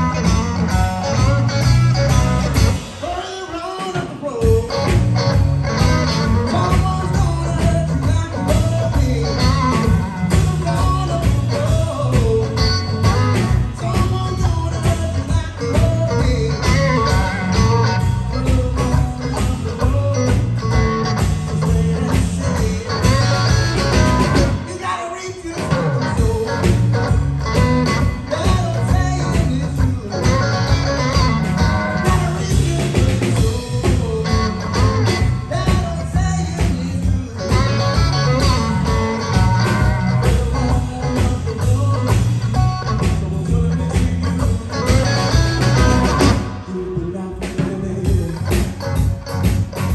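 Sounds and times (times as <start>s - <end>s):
blues-rock band playing: 0.0s - 49.9s
young man singing: 0.0s - 49.9s.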